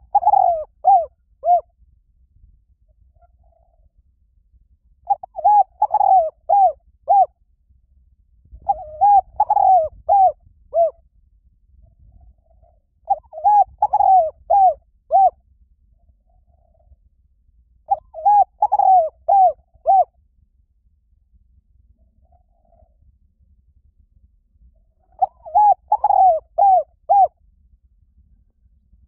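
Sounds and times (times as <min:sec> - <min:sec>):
dove cooing: 0:00.0 - 0:01.7, 0:03.2 - 0:03.9, 0:05.1 - 0:07.3, 0:08.6 - 0:11.0, 0:12.2 - 0:15.4, 0:17.9 - 0:20.1, 0:25.0 - 0:27.4.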